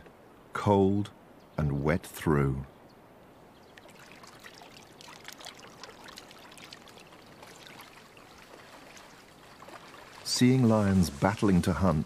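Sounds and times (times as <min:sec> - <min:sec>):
faint water trickling: 0:00.0 - 0:12.0
crackles and rustles in wet grass: 0:03.5 - 0:12.0.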